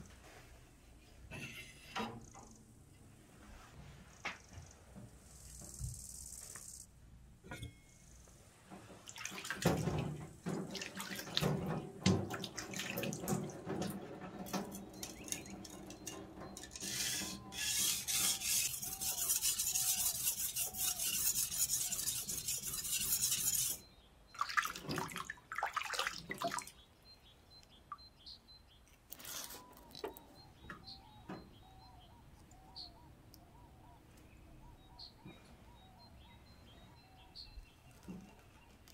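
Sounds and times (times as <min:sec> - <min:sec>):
water running and splashing in a sink: 0:09.0 - 0:15.3.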